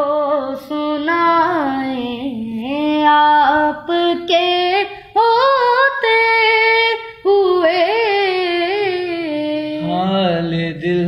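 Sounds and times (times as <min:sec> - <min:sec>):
boy singing unaccompanied: 0:00.0 - 0:11.0.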